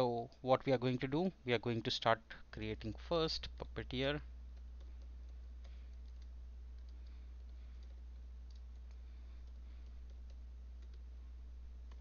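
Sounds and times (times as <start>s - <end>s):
steady low hum: 0.0s - 12.0s
keyboard typing: 4.5s - 11.1s, 11.8s - 12.0s.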